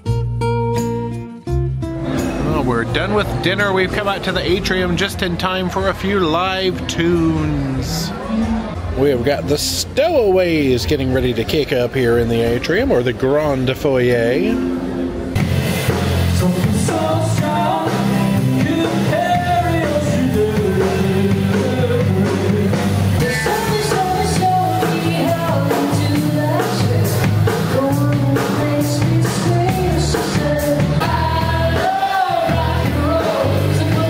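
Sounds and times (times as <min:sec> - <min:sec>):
electric guitar: 0:00.0 - 0:04.3, 0:14.6 - 0:34.0
acoustic guitar: 0:00.0 - 0:09.0, 0:14.6 - 0:34.0
bass guitar: 0:00.0 - 0:10.2, 0:13.5 - 0:34.0
drums: 0:00.0 - 0:34.0
woman singing lead: 0:16.4 - 0:34.0.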